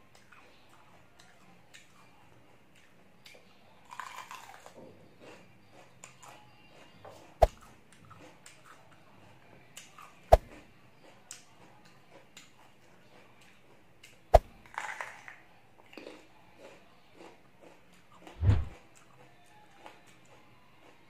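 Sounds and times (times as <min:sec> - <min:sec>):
crackly chewing: 0:00.0 - 0:21.0
teeth crunching raw vegetable: 0:00.1 - 0:21.0
wet chewing: 0:02.7 - 0:09.0.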